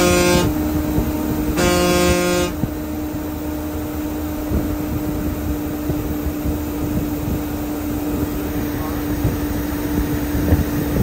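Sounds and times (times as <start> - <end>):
bus horn: 0.0 - 3.2
bus engine drone: 0.0 - 11.0.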